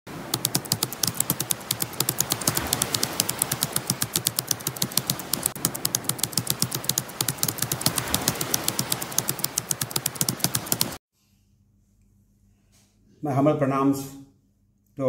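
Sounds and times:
fast keyboard clicks: 0.1 - 11.0.

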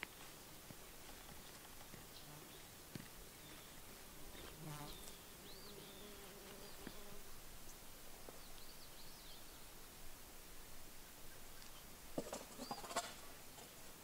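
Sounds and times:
flying insect buzzing: 3.4 - 7.6.

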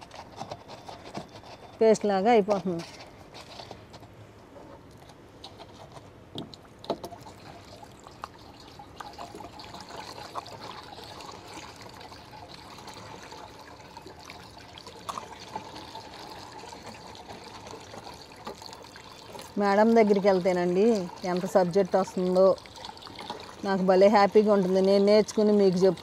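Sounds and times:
water trickling and sloshing: 0.0 - 26.0.

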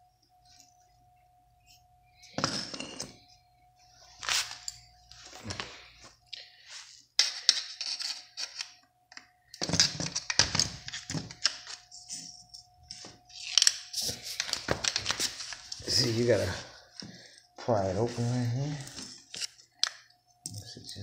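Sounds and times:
metal tools clinking and scraping: 2.2 - 3.3, 7.2 - 8.8.

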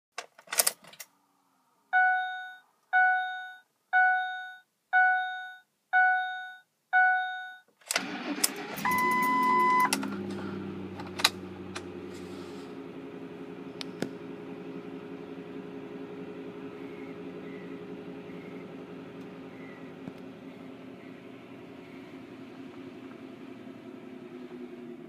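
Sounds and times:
steady beep: 2.0 - 7.6, 8.9 - 9.9
dashboard warning chimes: 2.0 - 7.7, 8.7 - 10.0
car engine cranking and starting: 7.9 - 25.0
car engine idling: 8.0 - 25.0.

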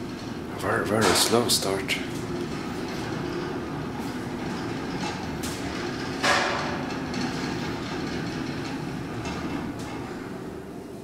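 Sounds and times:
elevator car low rumble: 0.0 - 11.0.

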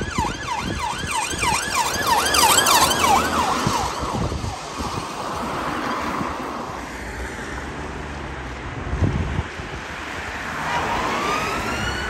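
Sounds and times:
police siren yelping: 0.0 - 6.3, 10.8 - 12.0.

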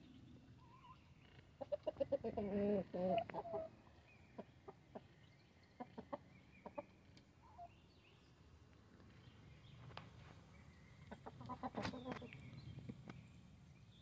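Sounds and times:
chickens pecking: 1.6 - 7.7, 9.8 - 13.3
chicken clucking: 1.6 - 7.8, 11.0 - 12.4.

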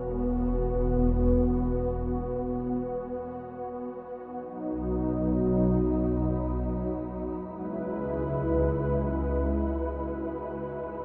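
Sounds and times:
slow ambient music: 0.0 - 11.0.

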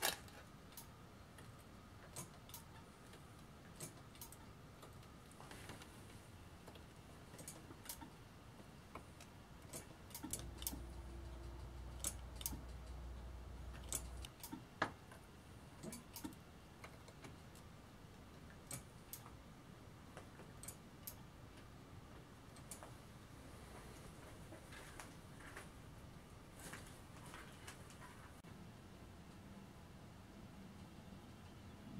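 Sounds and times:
low steady hum: 0.0 - 31.9
faint clicks and light taps: 20.1 - 23.0.

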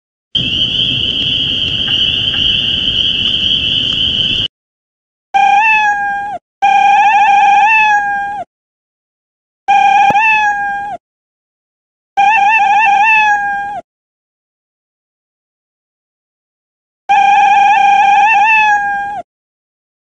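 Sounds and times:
shrill high tone: 0.4 - 4.5
cartoon cat meow: 5.4 - 8.5, 9.7 - 11.0, 12.2 - 13.8, 17.1 - 19.3.

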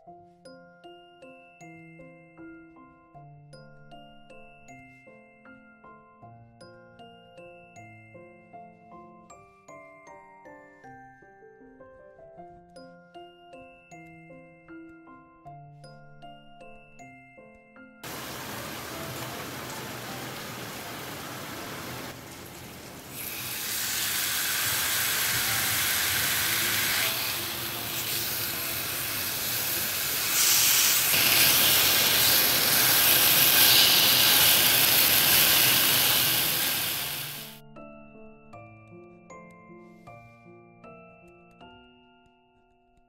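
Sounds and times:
chicken sizzling in oil: 18.0 - 37.6.

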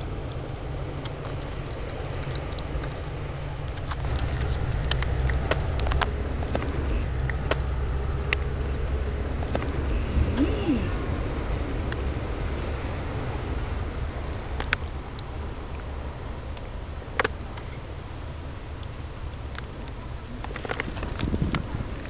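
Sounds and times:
low rumble: 0.0 - 16.6.

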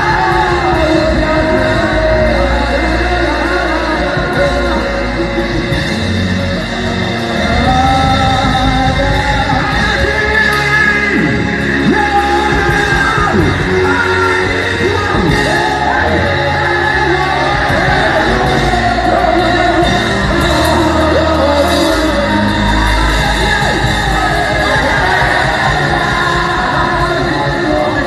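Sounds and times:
band with drum kit: 0.0 - 28.0
man singing into microphone: 0.0 - 28.0
people shouting and yelling: 5.9 - 28.0.

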